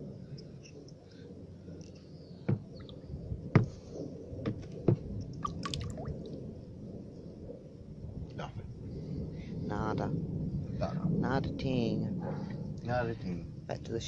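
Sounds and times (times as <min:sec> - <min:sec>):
low rumbling handling noise: 0:00.0 - 0:09.0.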